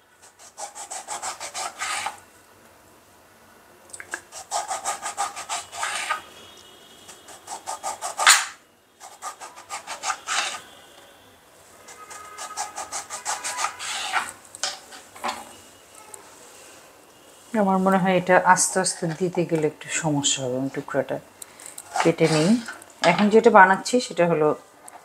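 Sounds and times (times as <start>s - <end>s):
knife sawing through lime: 0.2s - 2.2s, 4.3s - 6.2s, 7.3s - 10.6s, 12.0s - 14.3s, 21.9s - 22.6s.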